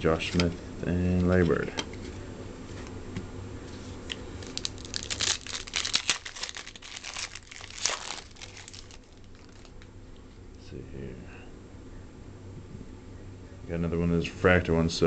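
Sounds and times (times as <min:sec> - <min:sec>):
foil wrapper crinkling: 0:04.0 - 0:09.9.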